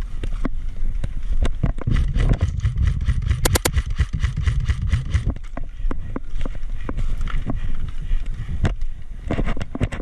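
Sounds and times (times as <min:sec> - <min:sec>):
wind rumble on microphone: 0:00.0 - 0:10.0
sharp clicks: 0:01.9 - 0:05.4
camera handling noise: 0:03.1 - 0:05.6.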